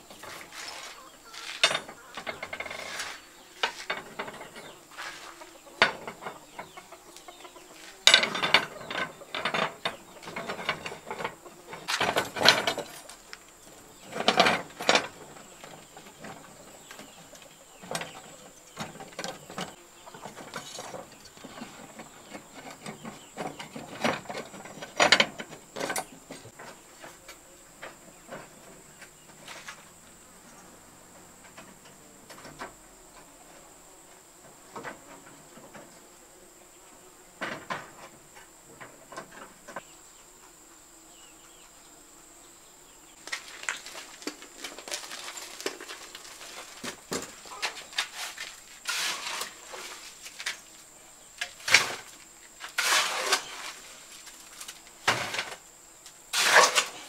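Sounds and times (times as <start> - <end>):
hoe scraping mortar in wheelbarrow: 0.0 - 27.4, 28.1 - 30.6, 43.2 - 50.8, 51.4 - 55.7, 56.3 - 57.0
high insect drone: 0.0 - 57.0.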